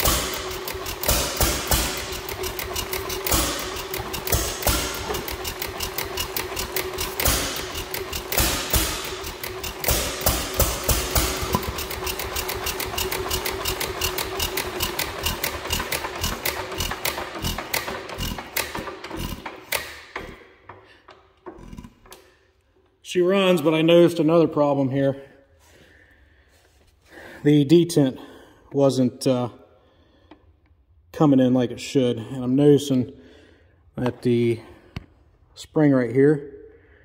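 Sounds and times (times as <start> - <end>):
single-cylinder engine clattering: 0.0 - 21.6.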